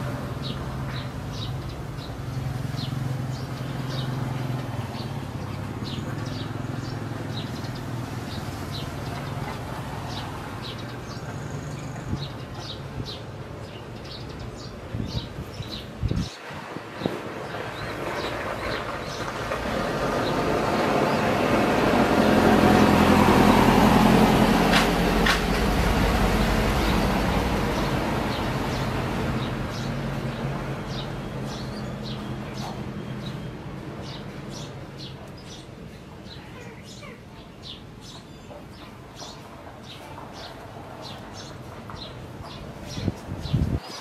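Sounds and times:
motor vehicle passing by: 0.0 - 13.2, 14.0 - 36.0.

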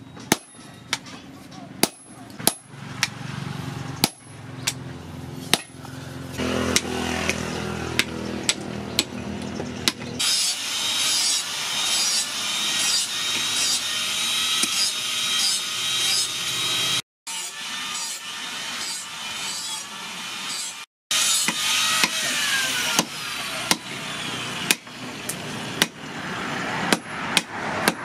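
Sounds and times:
hammer striking hot steel: 1.8 - 3.2, 26.9 - 28.0
loud rasping scraping: 9.8 - 28.0.

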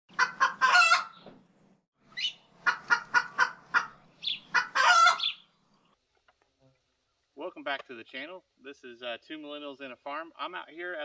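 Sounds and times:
hen clucking: 0.1 - 1.3, 2.1 - 5.5.

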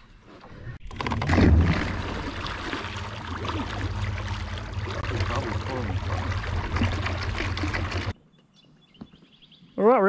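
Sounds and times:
water churning and splashing: 0.8 - 8.2
low rumble: 1.3 - 8.1.

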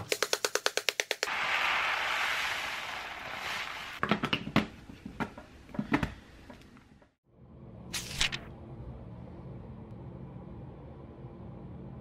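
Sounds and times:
rice grains pouring into container: 1.3 - 4.0.

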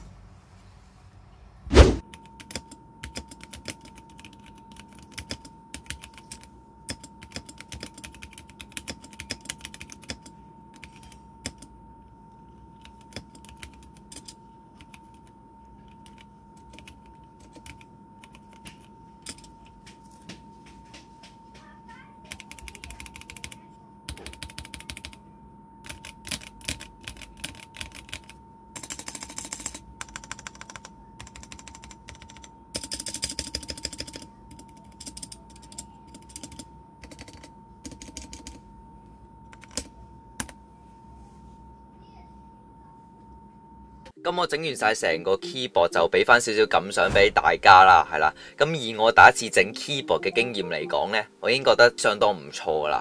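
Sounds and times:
mechanical keyboard typing: 2.2 - 11.7, 12.8 - 19.7, 22.3 - 25.2, 25.8 - 38.6, 39.5 - 40.6.

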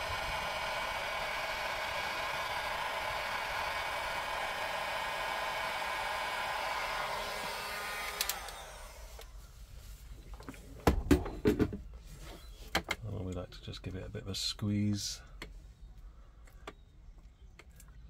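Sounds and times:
heat gun blowing: 0.0 - 9.5
heat gun switch click: 8.0 - 8.6.

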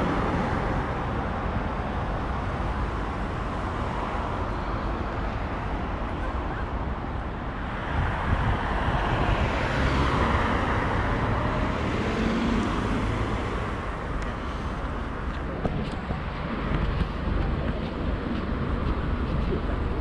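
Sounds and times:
low traffic rumble: 0.0 - 20.0
car passing: 7.7 - 20.0.

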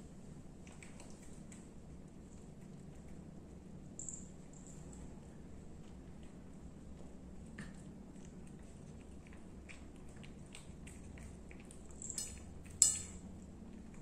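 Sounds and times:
cat chewing and licking food: 0.0 - 14.0.

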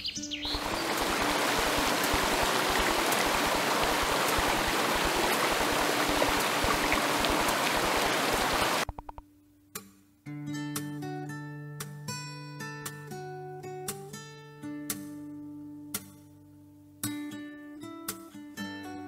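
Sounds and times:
rushing water: 0.5 - 8.9
acoustic guitar music: 9.1 - 19.0.

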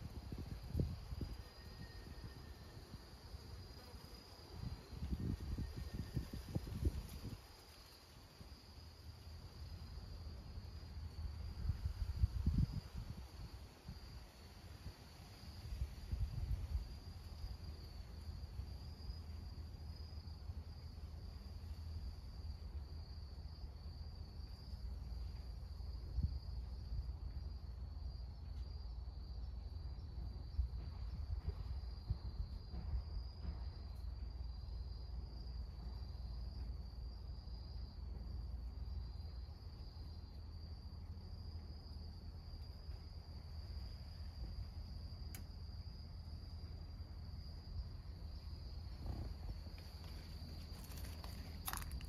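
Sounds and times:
crickets trilling: 0.0 - 52.0.

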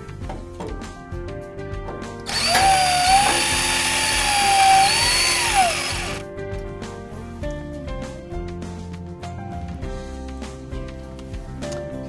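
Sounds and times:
background music: 0.0 - 12.0
cordless drill motor whine: 2.3 - 6.2.

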